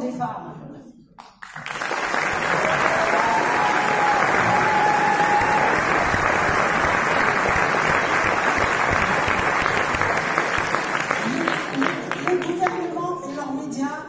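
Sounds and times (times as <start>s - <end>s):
audience applauding: 1.2s - 12.9s
high-pitched cheer: 2.3s - 10.1s.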